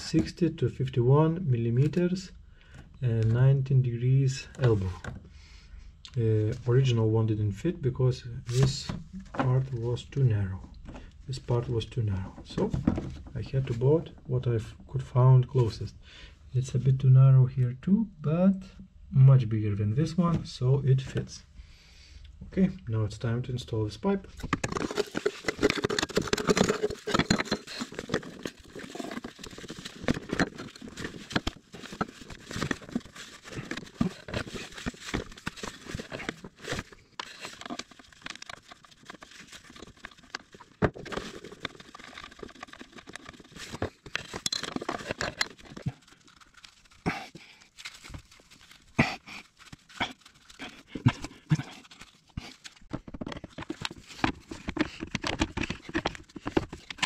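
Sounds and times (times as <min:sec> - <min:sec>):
gloved hands rubbing and rustling: 0:24.3 - 0:57.0.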